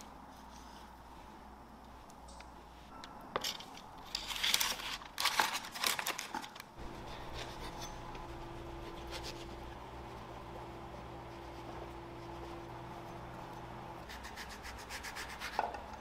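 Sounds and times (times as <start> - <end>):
paper crinkling and tearing: 4.0 - 9.7
faint steady hum: 6.8 - 15.1.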